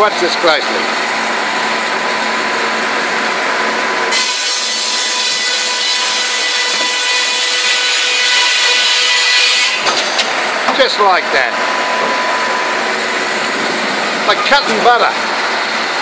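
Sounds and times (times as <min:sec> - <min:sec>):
saw rasping through wood: 0:04.1 - 0:09.9
circular saw blade humming: 0:04.1 - 0:10.0.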